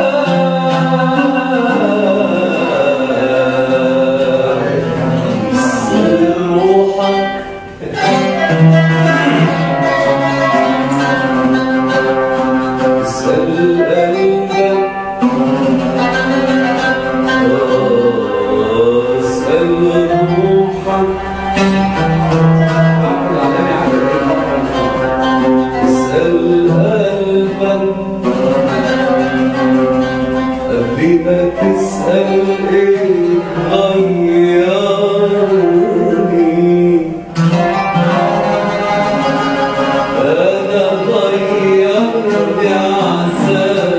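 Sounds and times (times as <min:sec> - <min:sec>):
oud and qanun melody: 0:00.0 - 0:43.9.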